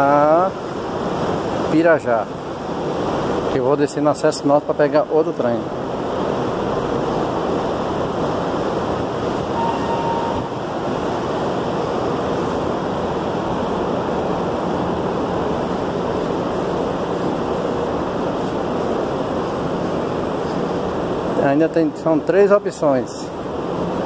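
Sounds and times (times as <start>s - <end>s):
metro station rushing noise: 7.2s - 14.3s
faint tone: 9.5s - 11.0s.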